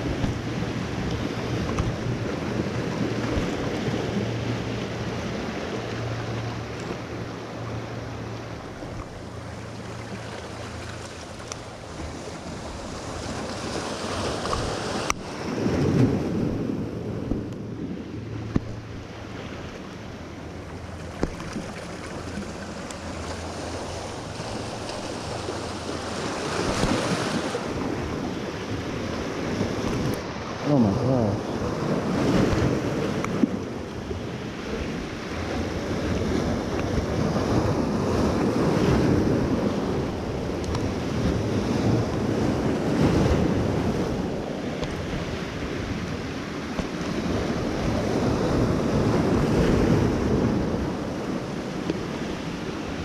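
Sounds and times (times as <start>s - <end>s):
surf washing over rocks: 0.0s - 53.0s
wind buffeting microphone: 11.8s - 19.7s.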